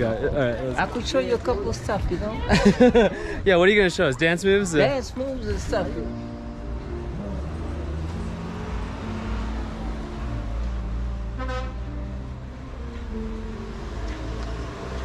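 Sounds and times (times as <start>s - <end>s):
road traffic: 0.0s - 15.0s
vehicle engine running low: 6.0s - 15.0s.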